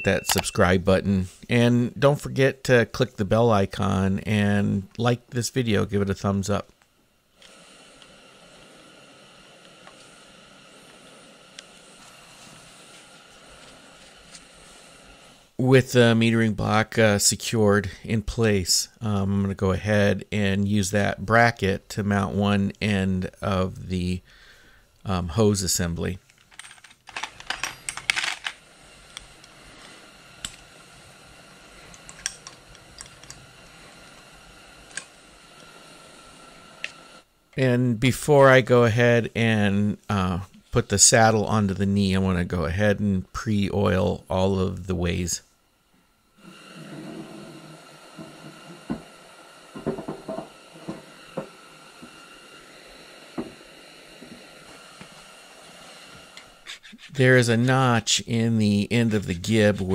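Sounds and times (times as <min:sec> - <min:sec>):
faint steady hiss: 0:00.0 - 0:59.9
faint steady hum: 0:00.0 - 0:59.9
small metal clicks and rattles: 0:26.2 - 0:28.6
hose and parts knocking on metal: 0:49.8 - 0:52.1.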